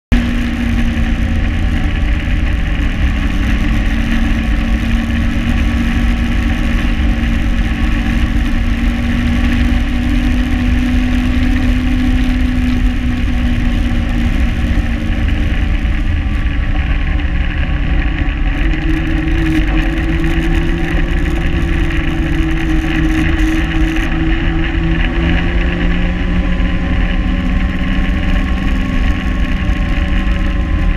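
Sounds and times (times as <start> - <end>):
constant low rumble: 0.1 - 30.9
snowmobile engine running: 0.1 - 30.9.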